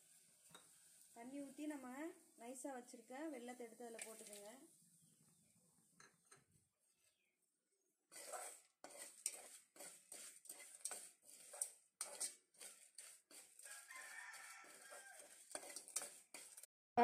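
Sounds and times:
spoon scraping in a pan: 0.0s - 2.2s, 2.8s - 4.7s, 8.1s - 16.7s.

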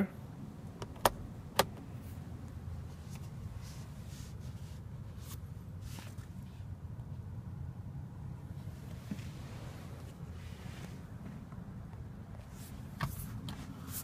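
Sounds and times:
low steady hum: 0.0s - 14.0s
hand rustling against leather: 2.8s - 6.6s.

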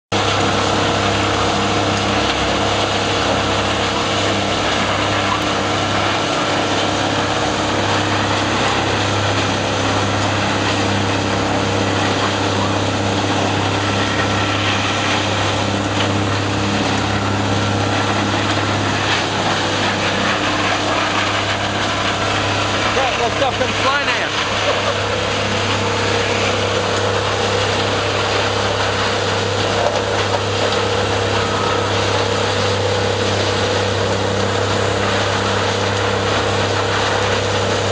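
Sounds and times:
low diesel engine drone: 0.1s - 37.9s
machine grinding wood: 0.1s - 37.9s.

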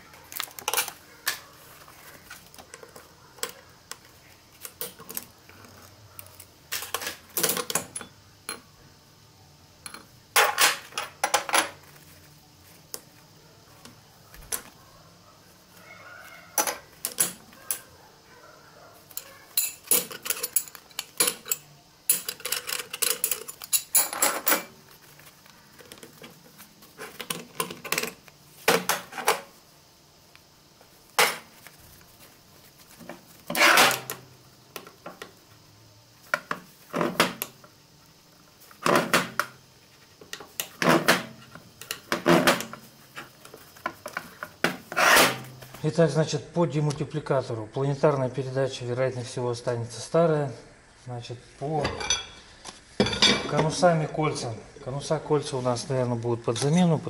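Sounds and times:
steel parts clinking and knocking: 19.1s - 24.7s.

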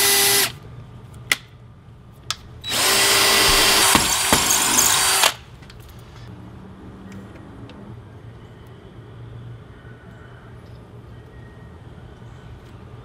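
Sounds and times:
cordless drill driving screw: 2.6s - 5.4s.

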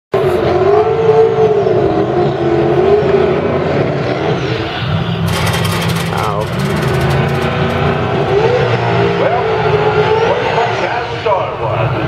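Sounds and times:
tyres spinning: 5.2s - 8.6s.

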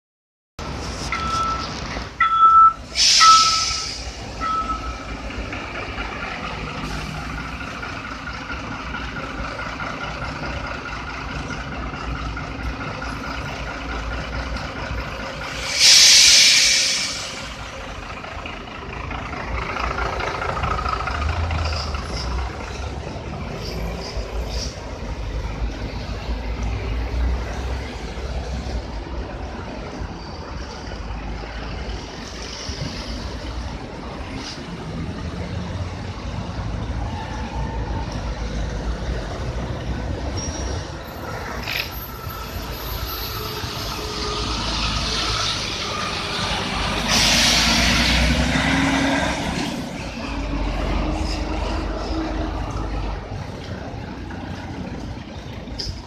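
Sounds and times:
vehicles running: 0.6s - 56.0s
loud hiss: 2.8s - 4.4s, 15.4s - 17.7s.

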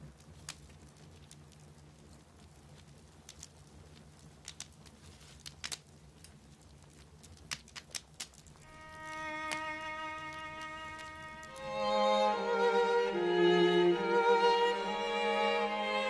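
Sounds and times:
fire popping: 0.0s - 16.0s
wood fire crackling: 0.0s - 16.0s
violin music: 8.7s - 16.0s.

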